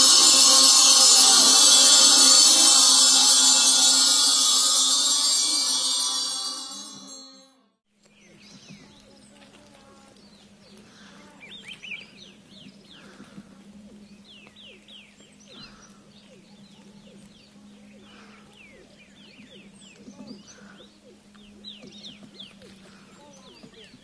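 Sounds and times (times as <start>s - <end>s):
small birds chirping: 8.0s - 24.0s.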